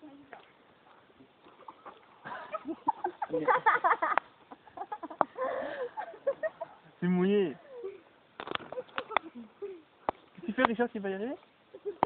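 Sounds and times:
people laughing: 1.6 - 6.8.

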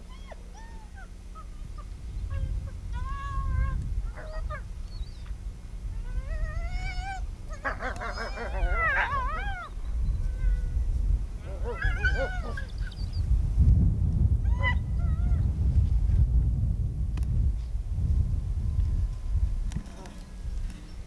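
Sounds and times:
wolves whining and yelping: 0.0 - 5.2, 5.9 - 10.8, 11.4 - 13.2, 14.4 - 15.4
low rumble: 8.6 - 21.0.

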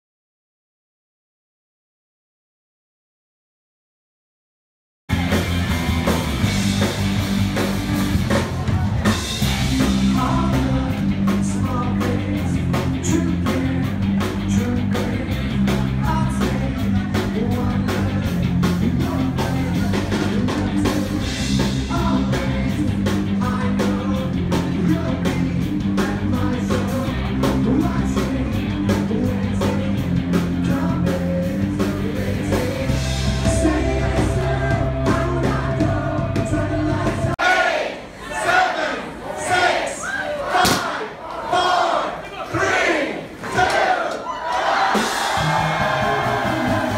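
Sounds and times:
rock band with singer: 5.1 - 38.5, 43.7 - 46.9.

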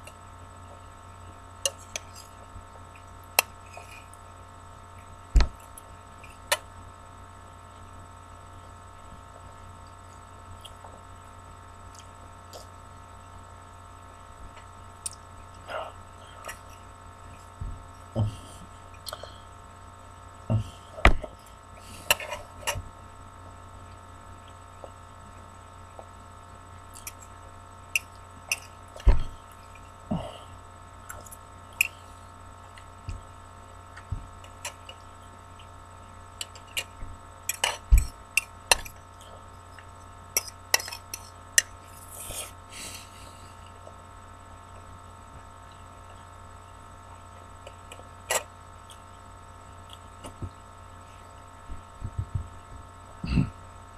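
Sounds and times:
electrical hum: 0.0 - 53.9
person eating from a bowl: 1.7 - 4.3, 36.4 - 43.0
chewing: 26.8 - 30.4.

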